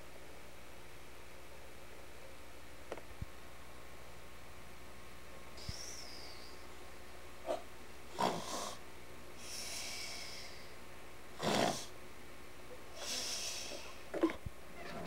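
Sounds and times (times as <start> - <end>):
boy fake snoring: 8.2 - 8.8, 11.4 - 11.9.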